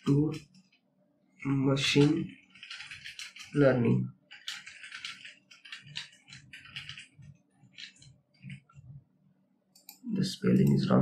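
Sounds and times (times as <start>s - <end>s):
keyboard typing: 1.4s - 8.9s.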